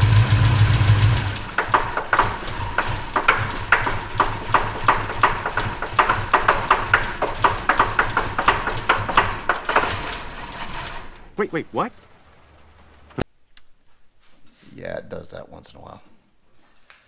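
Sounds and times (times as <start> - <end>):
valve train tapping: 0.0 - 10.2
engine idling: 0.0 - 13.2.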